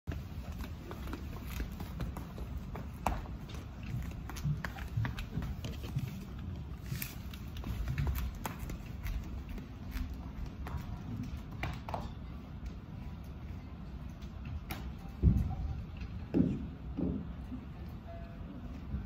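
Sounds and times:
footsteps on wooden floor: 0:00.1 - 0:11.2.

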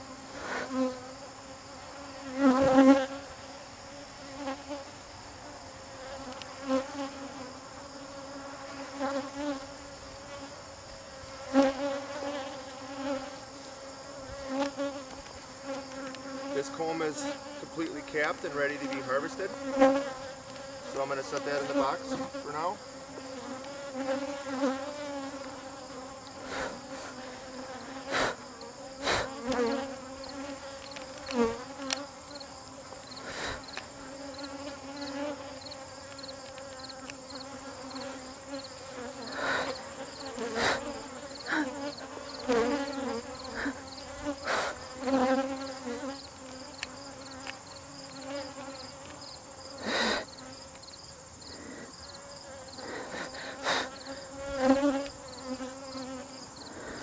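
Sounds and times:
honeybees buzzing: 0:00.0 - 0:57.0.

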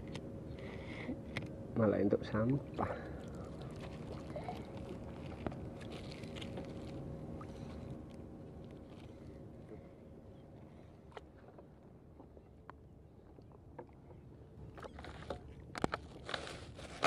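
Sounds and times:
faint steady hum: 0:00.0 - 0:17.0
water lapping against canoe: 0:02.7 - 0:08.1, 0:10.7 - 0:17.0.

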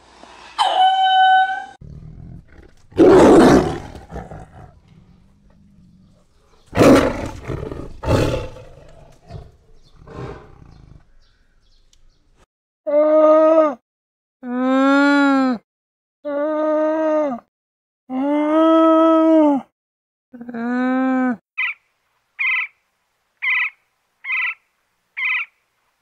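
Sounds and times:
tiger roaring: 0:01.8 - 0:11.3.

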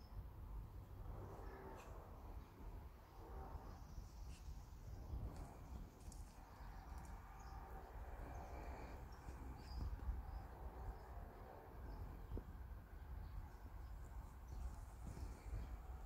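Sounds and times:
low microphone rumble: 0:00.8 - 0:16.0
faint bird chirps: 0:05.7 - 0:11.2.

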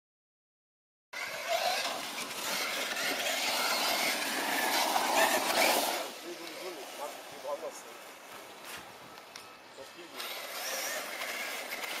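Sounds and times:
radio-controlled truck motor: 0:01.2 - 0:07.1, 0:10.1 - 0:12.0
tyres on dirt: 0:01.2 - 0:12.0.

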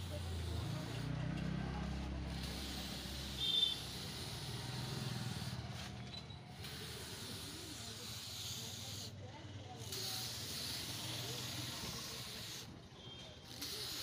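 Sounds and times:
paint spray gun hissing: 0:00.0 - 0:01.2, 0:01.8 - 0:05.8, 0:06.5 - 0:09.2, 0:09.8 - 0:12.8, 0:13.5 - 0:14.0
short high whistle: 0:03.4 - 0:03.9.

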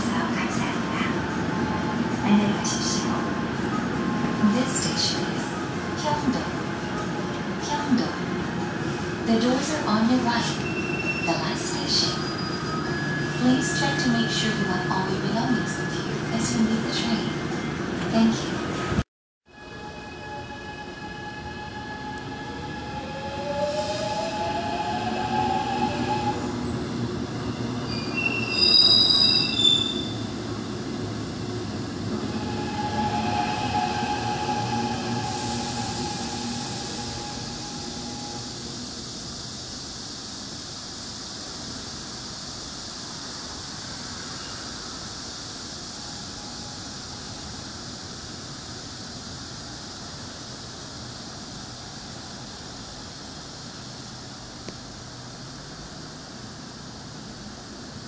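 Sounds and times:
train wheels squealing: 0:10.4 - 0:16.1, 0:19.8 - 0:30.4.

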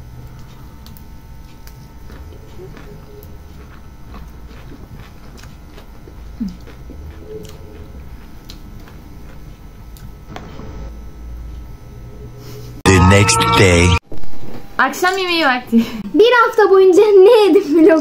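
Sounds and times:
people chewing: 0:00.1 - 0:10.3.

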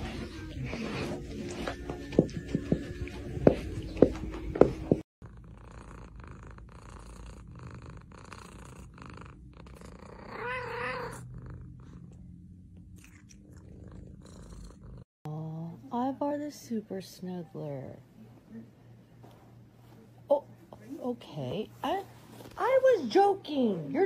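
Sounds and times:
cat purring: 0:05.2 - 0:15.1
cat meowing: 0:10.2 - 0:11.2.

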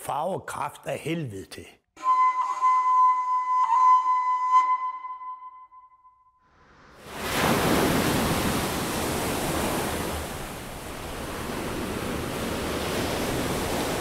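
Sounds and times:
waves washing on beach: 0:07.0 - 0:14.0.

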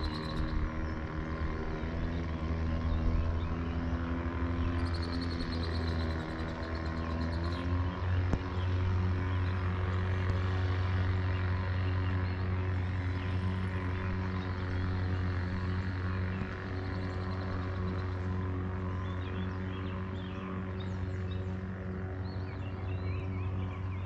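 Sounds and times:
faint bird chirps: 0:00.0 - 0:00.6, 0:04.6 - 0:07.6
motorboat engine idling: 0:00.0 - 0:24.0.

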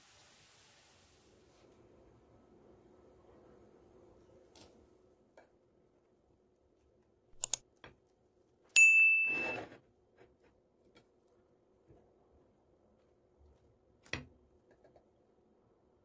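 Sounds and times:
mouse clicks: 0:07.4 - 0:07.6
bright bell ding: 0:08.8 - 0:09.6.

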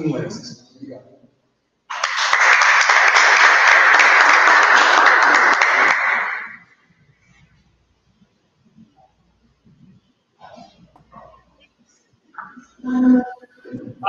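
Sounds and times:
audience applauding: 0:01.9 - 0:06.7.

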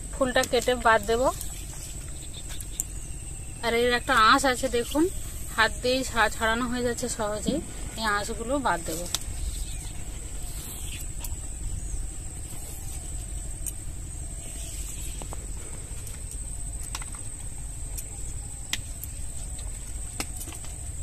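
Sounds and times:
steady low rumble: 0:00.0 - 0:21.0
stems snapping and clicking: 0:16.0 - 0:20.9.

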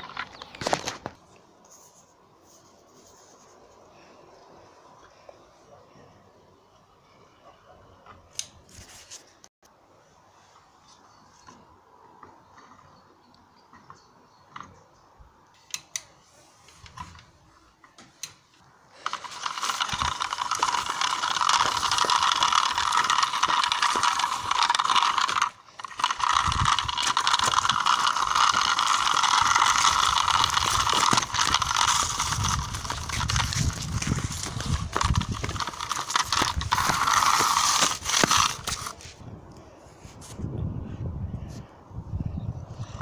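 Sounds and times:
wheels knocking over rough dirt: 0:00.0 - 0:01.2, 0:19.0 - 0:39.1
toy truck motor whirring: 0:19.0 - 0:39.1.

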